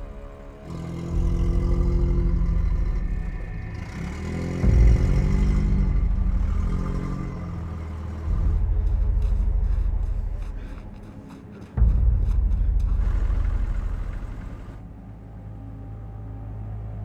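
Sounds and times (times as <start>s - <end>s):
old car engine driving: 0.7s - 14.8s.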